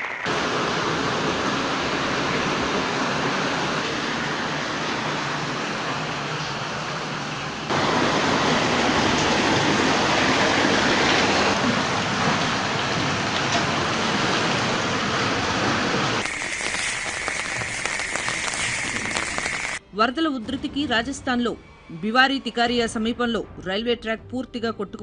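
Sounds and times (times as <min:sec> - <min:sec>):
rushing flood water: 0:00.0 - 0:16.2
rain pattering: 0:00.0 - 0:19.8.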